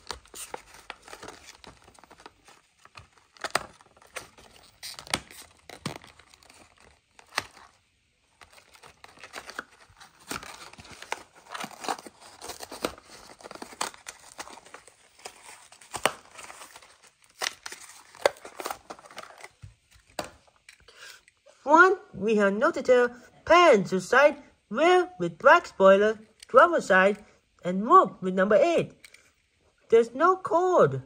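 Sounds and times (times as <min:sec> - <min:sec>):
cardboard ripping: 0:00.0 - 0:07.8, 0:08.4 - 0:19.6
plastic blister crinkling: 0:00.0 - 0:20.8.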